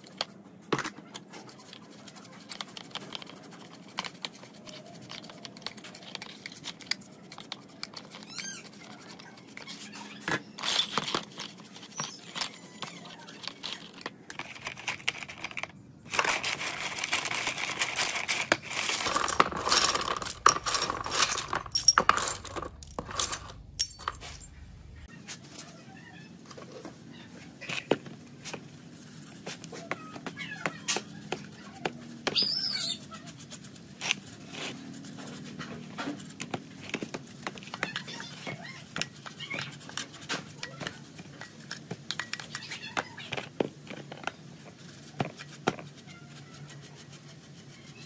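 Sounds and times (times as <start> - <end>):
brush scrubbing metal parts: 0.0 - 24.5, 27.7 - 48.0
bolts and nuts clinking: 10.2 - 25.0.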